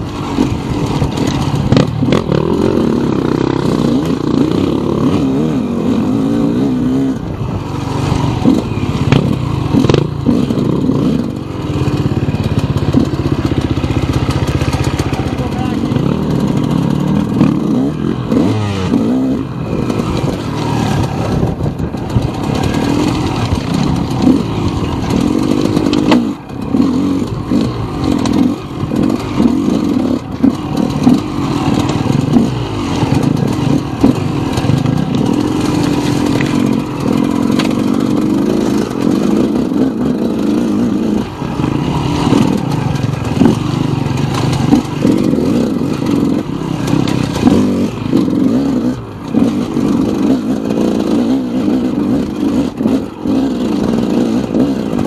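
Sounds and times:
dirt bike engine revving: 0:00.0 - 0:55.0.

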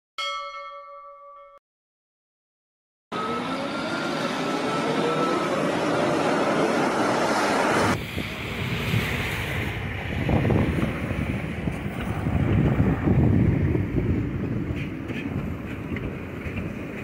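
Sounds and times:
tram rolling past: 0:03.2 - 0:17.0
steady rushing noise: 0:05.0 - 0:17.0
wind buffeting microphone: 0:07.0 - 0:17.0.

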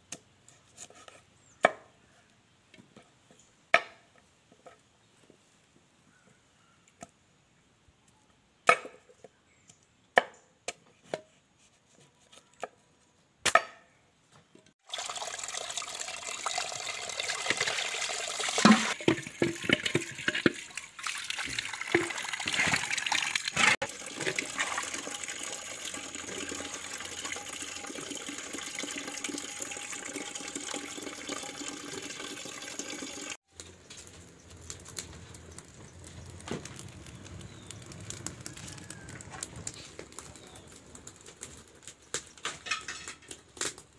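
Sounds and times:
wood fire crackling: 0:14.9 - 0:43.9
water splashing and sloshing: 0:17.2 - 0:30.8
pieces clattering: 0:42.4 - 0:43.4.

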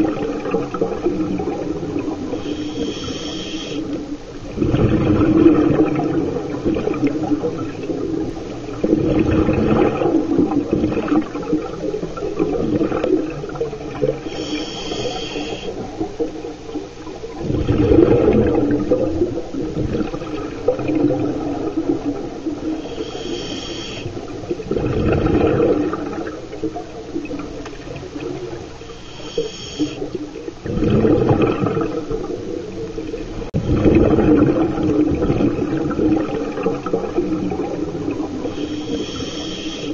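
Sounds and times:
exhaled bubbles gushing: 0:00.0 - 0:39.9
regulator inhale hiss: 0:02.2 - 0:04.0, 0:14.2 - 0:15.9, 0:22.7 - 0:24.3, 0:28.8 - 0:30.2, 0:38.4 - 0:39.9.

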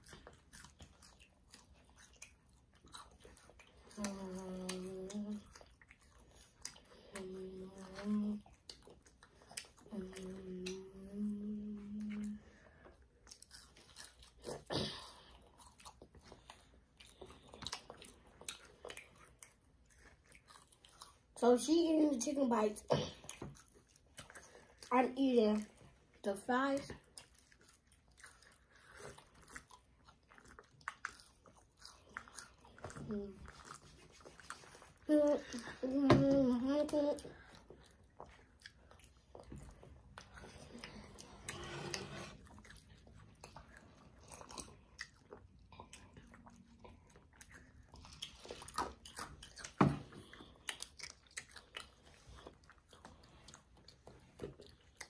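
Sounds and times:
chewing and crunching fries: 0:00.0 - 0:41.6, 0:42.3 - 0:55.0
wet mouth clicks and smacks: 0:44.5 - 0:55.0.

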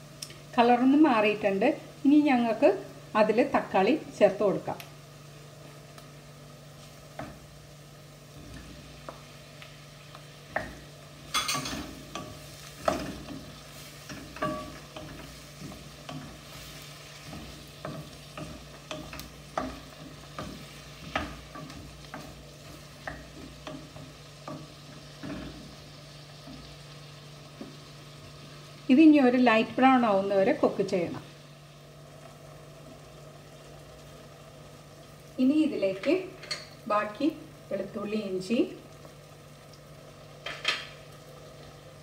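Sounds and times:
food sizzling in oil: 0:00.0 - 0:42.0
low steady hum: 0:00.0 - 0:42.0
wooden spoon scraping a pan: 0:10.6 - 0:26.8.

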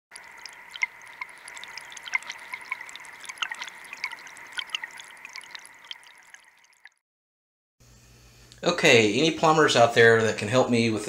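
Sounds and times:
faucet water trickling and splashing: 0:00.0 - 0:07.0.

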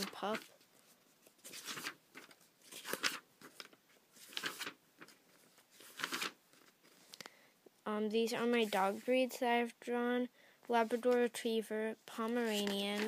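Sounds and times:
paper rustling: 0:00.0 - 0:07.1, 0:08.4 - 0:09.2, 0:12.2 - 0:13.0.

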